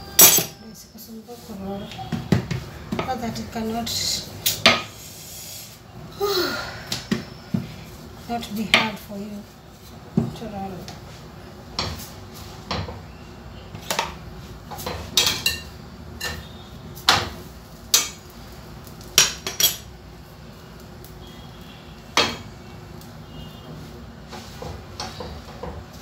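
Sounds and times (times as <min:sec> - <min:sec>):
metal spoon clinking in frying pan: 0:00.1 - 0:00.6.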